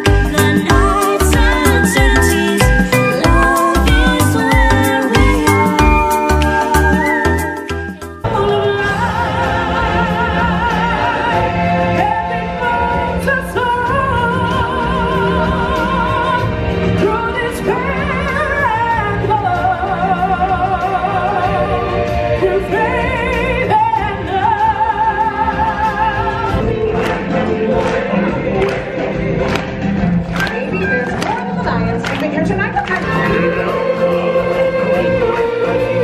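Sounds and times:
singer with vibrato over beat: 0:00.0 - 0:27.8.

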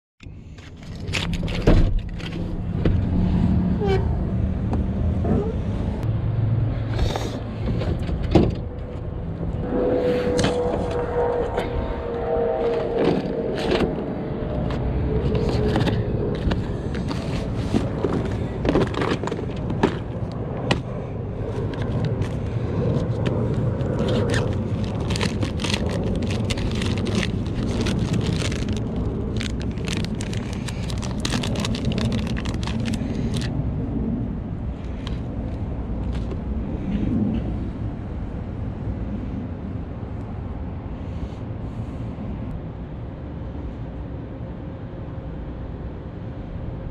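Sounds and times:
steady low rumble: 0:00.2 - 0:46.9
plastic packages clicking and crinkling: 0:21.6 - 0:22.4, 0:23.8 - 0:33.5.

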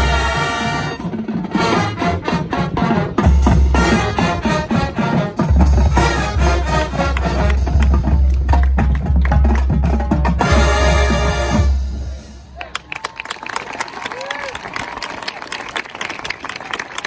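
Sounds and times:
brass and saxophones chords: 0:00.0 - 0:08.3, 0:10.2 - 0:12.5.

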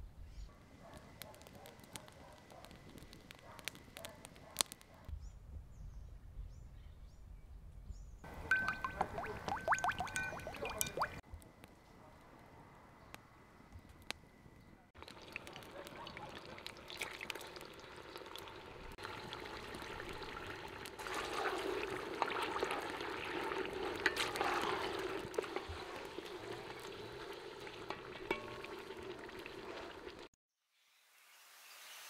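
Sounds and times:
wood fire crackling: 0:00.6 - 0:05.1, 0:14.9 - 0:30.3
meat sizzling in hot fat: 0:15.0 - 0:30.3
wooden spoon stirring meat: 0:21.0 - 0:30.1.

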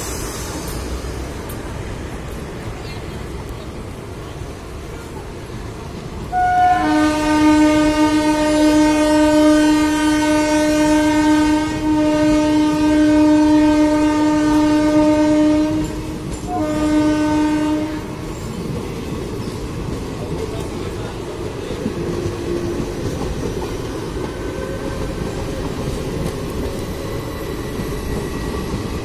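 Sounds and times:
train coaches rumbling past: 0:00.0 - 0:29.0
train horn blast: 0:06.3 - 0:18.2.

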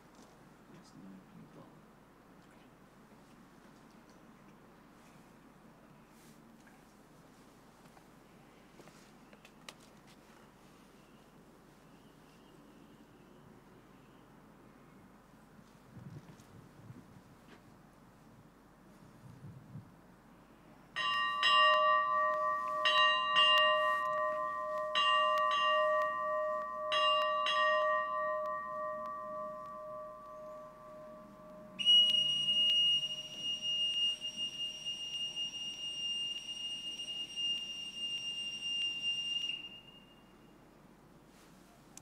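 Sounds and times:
boatswain's call high note: 0:21.0 - 0:34.4
brass ship's bell ringing: 0:21.0 - 0:34.5.

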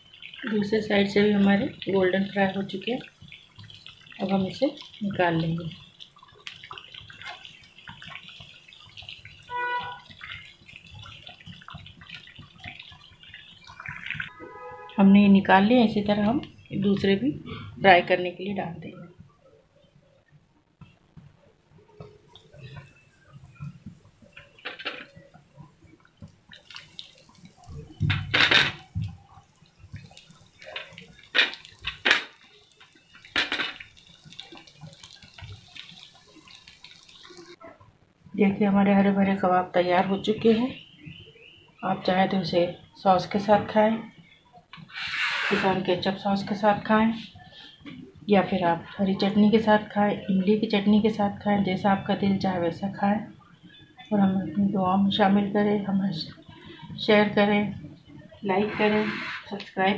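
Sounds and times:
food sizzling in hot oil: 0:00.0 - 0:14.6, 0:22.3 - 0:37.6.

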